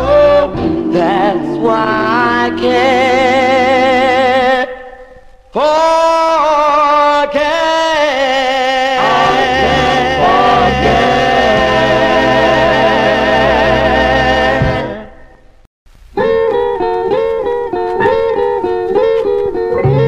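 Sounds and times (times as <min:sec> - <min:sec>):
bass and band playing: 0:00.0 - 0:04.2, 0:09.0 - 0:15.1, 0:16.2 - 0:20.0
vocal group harmonies: 0:00.0 - 0:15.5.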